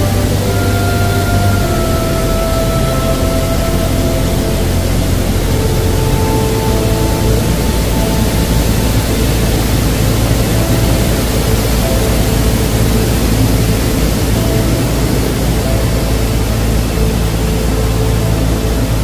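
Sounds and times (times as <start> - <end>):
faint sustained music notes: 0.0 - 19.0
river water rushing over rapids: 0.0 - 19.0.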